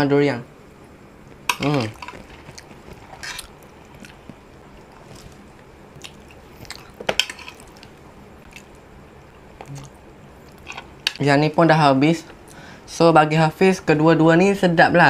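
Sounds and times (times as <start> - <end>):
chewing and mouth noises: 2.0 - 10.8.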